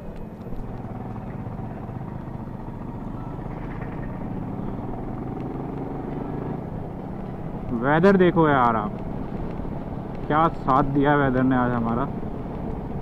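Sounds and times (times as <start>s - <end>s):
motorcycle engine running: 0.0s - 13.0s
wind noise rumble: 6.6s - 13.0s.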